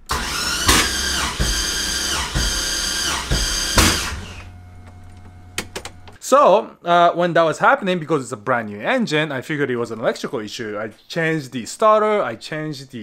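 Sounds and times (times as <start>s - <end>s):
starter cranking engine: 0.1s - 4.6s
low hum: 3.2s - 6.2s
clicks: 3.9s - 6.2s.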